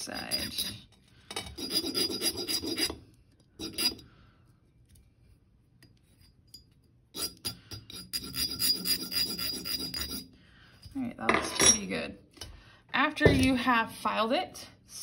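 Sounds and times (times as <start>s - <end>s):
hand file rasping on wire: 0.0s - 3.0s, 3.6s - 4.0s, 7.2s - 10.3s.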